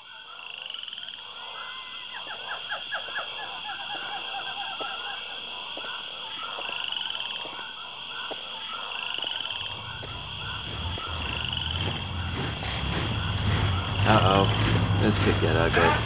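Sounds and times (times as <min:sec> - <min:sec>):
frogs croaking: 0:00.0 - 0:16.0
high insect trill: 0:00.0 - 0:16.0
low rumble: 0:09.6 - 0:16.0.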